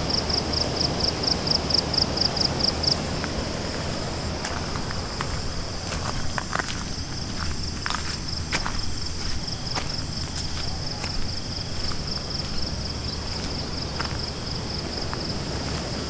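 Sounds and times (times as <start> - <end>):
fast-flowing river rushing: 0.0 - 6.3
high insect whine: 0.0 - 16.0
insect chirping in pulses: 0.0 - 16.0
footsteps crunching on gravel: 2.9 - 16.0.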